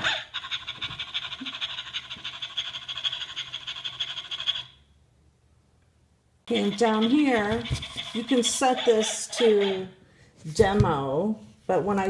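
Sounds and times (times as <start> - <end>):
toy dog raspy fluttering: 0.0 - 4.8, 6.5 - 9.8.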